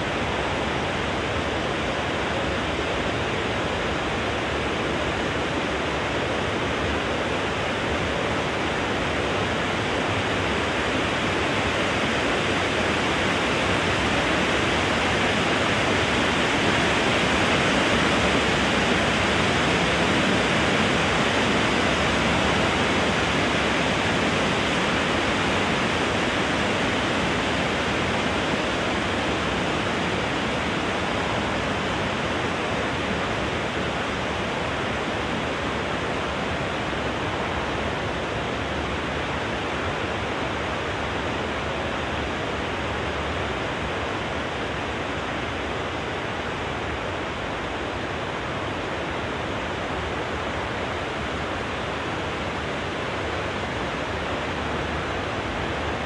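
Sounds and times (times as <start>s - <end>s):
wind blowing through trees: 0.0s - 56.0s.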